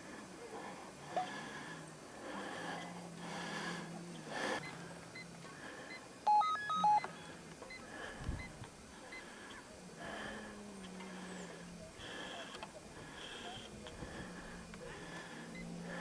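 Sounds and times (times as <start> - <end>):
faint low hum: 0.0 - 16.0
short electronic beeps: 6.3 - 7.1.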